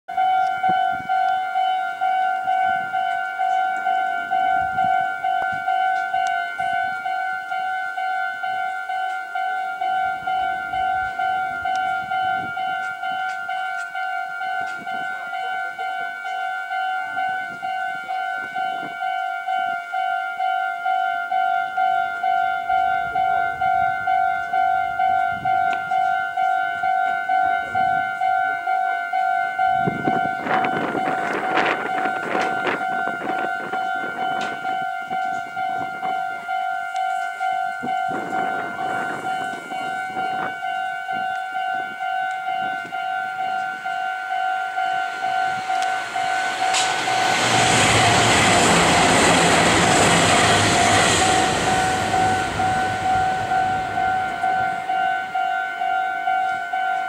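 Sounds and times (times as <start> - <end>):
two-tone crossing bell: 0.1 - 57.0
rushing noise: 44.1 - 55.3.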